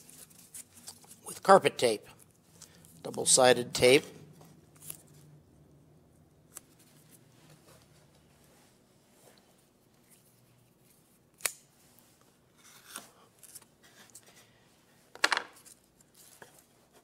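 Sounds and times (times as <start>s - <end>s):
knife scraping cuts: 12.6s - 13.7s.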